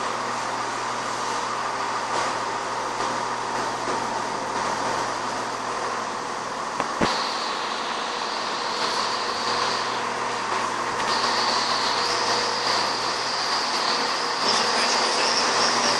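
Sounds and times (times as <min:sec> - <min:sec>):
diesel train engines idling: 0:00.0 - 0:15.9
steady high-pitched tone: 0:07.0 - 0:15.9.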